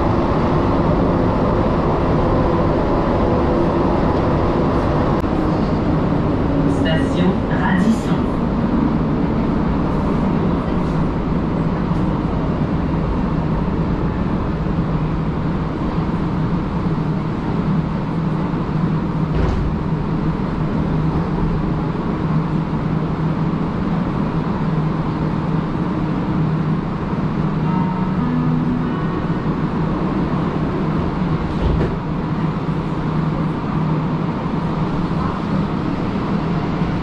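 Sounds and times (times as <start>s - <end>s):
train car hum and rumble: 0.0s - 37.0s
train doors clunking open: 19.1s - 20.2s, 27.5s - 32.8s.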